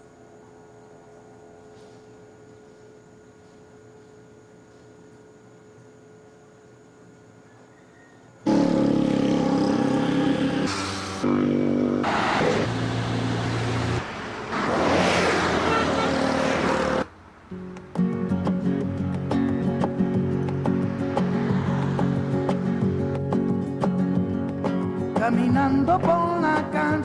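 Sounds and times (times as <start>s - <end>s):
faint steady hum: 0.0s - 8.5s
music with held chords: 17.5s - 27.0s.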